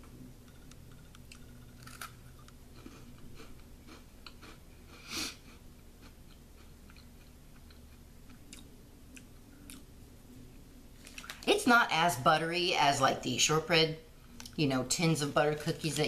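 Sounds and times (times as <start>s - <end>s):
person chewing crunchy cookie: 0.8s - 9.9s.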